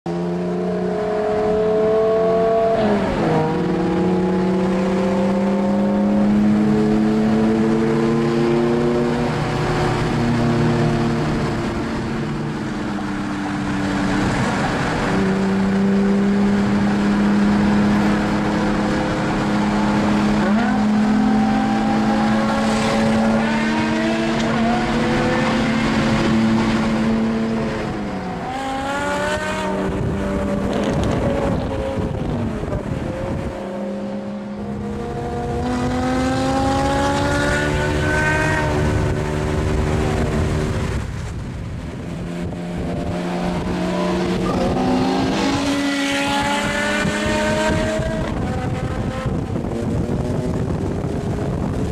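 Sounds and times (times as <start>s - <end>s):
road and wind noise: 0.1s - 51.9s
car engine and exhaust running: 36.8s - 45.6s, 46.6s - 51.9s.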